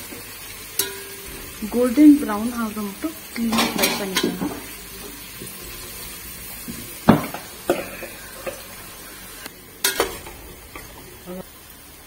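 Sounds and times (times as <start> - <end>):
onions sizzling in a pot: 0.0 - 12.0
metal ladle clanking on pot: 0.8 - 1.6, 3.4 - 4.7, 9.8 - 11.0.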